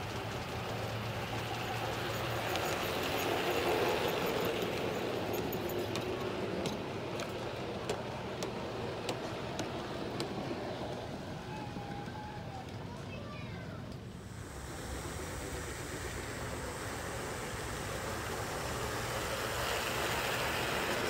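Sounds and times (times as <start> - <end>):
wheels clicking over track joints: 0.0 - 14.1
model train wheels and motor rumble: 0.0 - 21.0.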